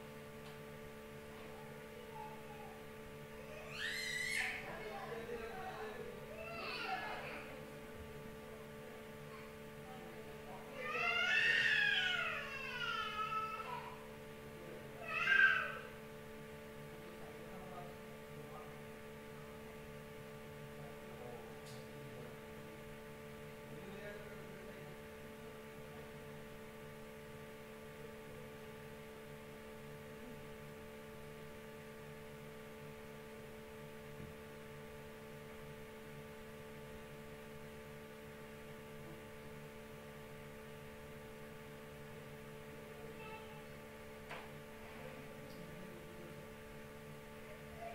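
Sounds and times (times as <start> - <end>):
steady electrical hum: 0.0 - 47.9.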